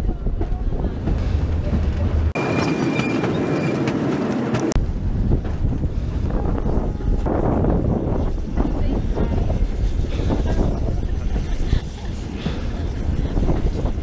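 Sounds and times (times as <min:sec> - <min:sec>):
train carriages rumbling on track: 0:00.0 - 0:14.0
wind buffeting microphone: 0:04.8 - 0:14.0.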